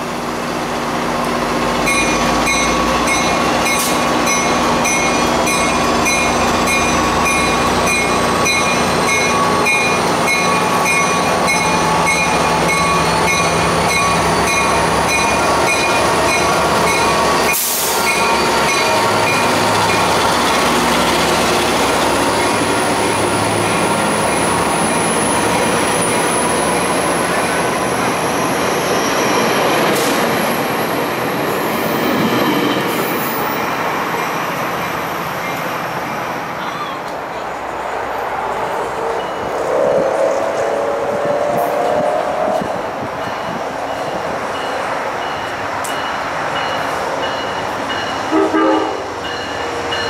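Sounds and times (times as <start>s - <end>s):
train rolling past: 0.0s - 50.0s.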